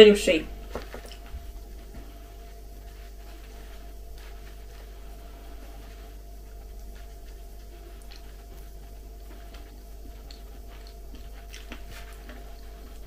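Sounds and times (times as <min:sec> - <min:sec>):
steady low hum: 0:00.0 - 0:13.0
chewing: 0:03.1 - 0:13.0.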